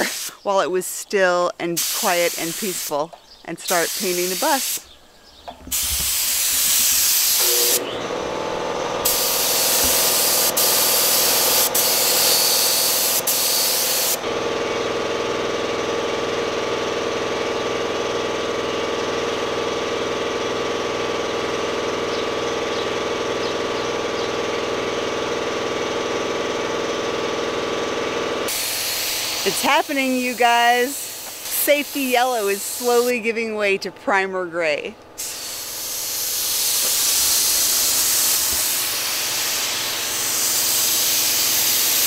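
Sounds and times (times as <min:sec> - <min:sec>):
paint spray gun hissing: 0:00.0 - 0:00.4, 0:01.8 - 0:03.0, 0:03.7 - 0:04.9, 0:05.7 - 0:07.9, 0:08.7 - 0:14.2, 0:28.5 - 0:33.3, 0:35.2 - 0:42.0
steady machine hum: 0:05.1 - 0:33.9, 0:34.9 - 0:42.0.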